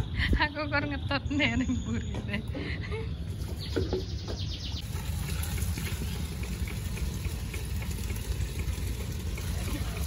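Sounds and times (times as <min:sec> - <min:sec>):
water running into plastic bucket: 0:04.8 - 0:10.0.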